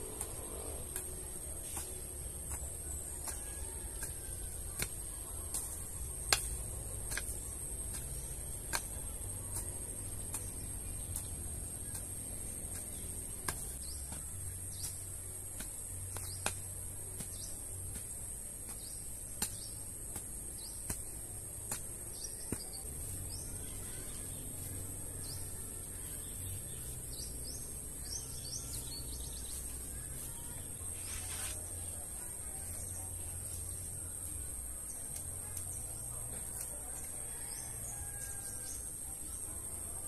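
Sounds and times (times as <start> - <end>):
pickaxe striking soil: 0.0 - 23.4.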